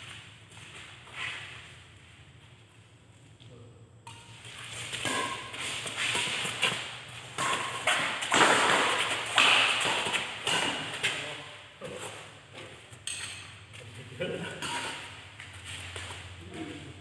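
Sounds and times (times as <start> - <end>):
rackets hitting shuttlecock: 4.0 - 13.7, 14.5 - 16.3.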